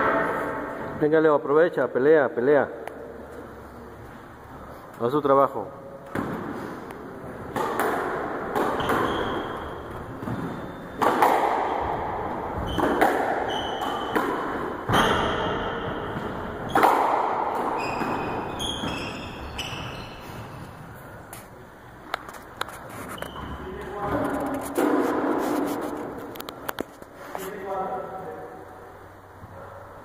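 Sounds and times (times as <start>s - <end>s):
squash ball struck by rackets: 6.1s - 6.6s, 7.4s - 19.9s, 24.0s - 26.0s
shoes squeaking on wooden floor: 8.6s - 11.1s, 12.3s - 16.9s, 17.6s - 21.0s, 22.2s - 26.3s.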